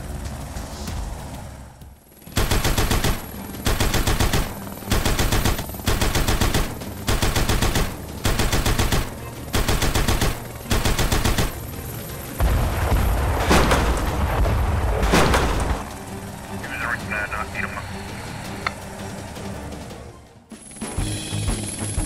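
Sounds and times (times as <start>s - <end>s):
machine-gun fire bursts: 2.2s - 11.7s, 13.4s - 14.4s, 15.0s - 15.9s.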